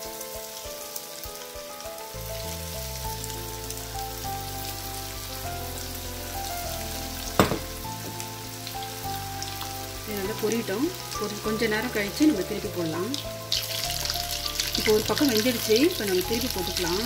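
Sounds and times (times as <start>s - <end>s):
background music: 0.0s - 17.0s
chicken frying in hot oil: 0.0s - 17.0s
sharp oil pop: 7.4s - 8.2s.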